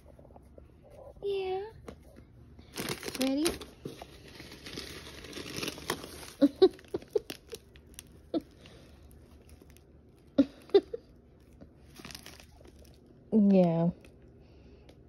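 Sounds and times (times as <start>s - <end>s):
plastic bag crinkling: 2.6s - 14.3s.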